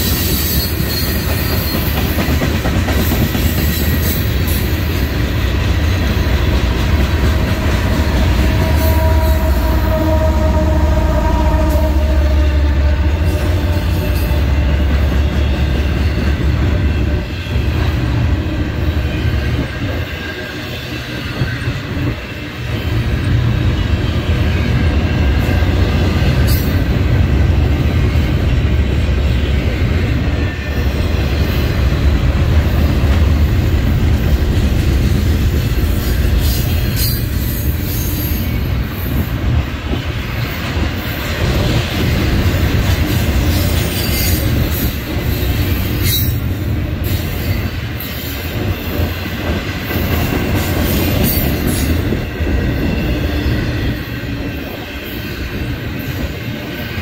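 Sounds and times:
freight train wheels rumbling: 0:00.0 - 0:57.0
high-pitched wheel squeals: 0:07.6 - 0:15.9.

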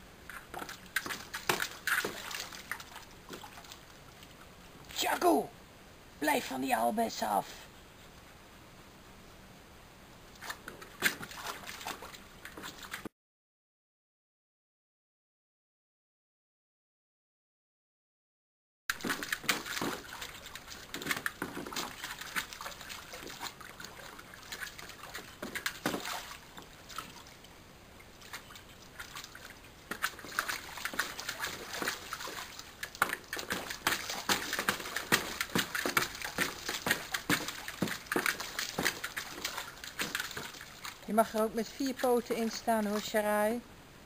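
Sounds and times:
dog splashing in paddling pool: 0:00.3 - 0:04.4, 0:10.4 - 0:13.1, 0:18.9 - 0:27.5, 0:28.2 - 0:43.3.

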